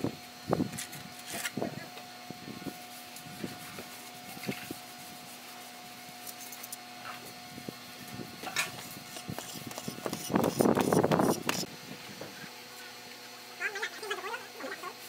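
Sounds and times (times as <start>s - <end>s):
trowel scraping wet mortar: 8.6s - 11.7s.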